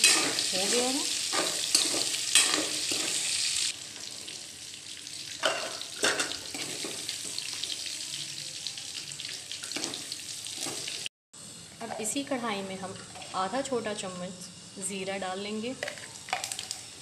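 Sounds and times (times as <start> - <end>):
metal spoon scraping pan: 0.0 - 3.3
food sizzling in hot oil: 0.0 - 17.0.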